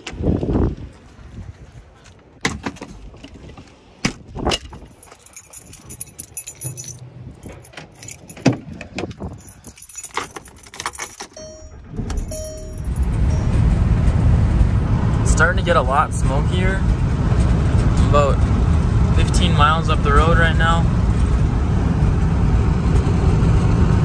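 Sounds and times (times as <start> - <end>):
car keys jangling: 4.6 - 13.6
short steady tone: 11.4 - 14.1.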